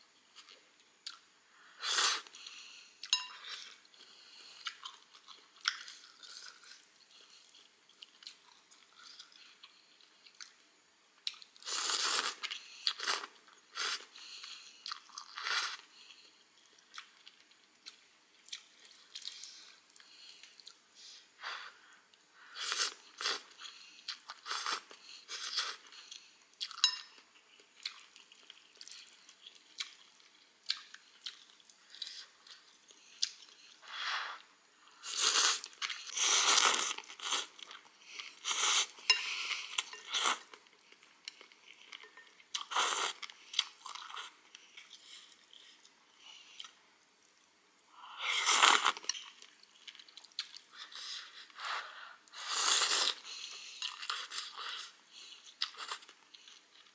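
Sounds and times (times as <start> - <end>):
chewing: 2.3 - 10.6, 11.2 - 20.8, 22.1 - 33.9, 48.6 - 51.6, 52.4 - 56.9
slurping noodles and broth: 33.8 - 37.5, 50.7 - 55.0.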